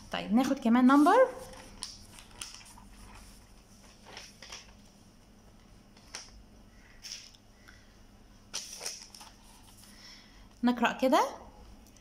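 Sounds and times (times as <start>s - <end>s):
steady low hum: 0.0s - 12.0s
paper rustling on clipboard: 0.4s - 7.4s, 8.5s - 10.1s.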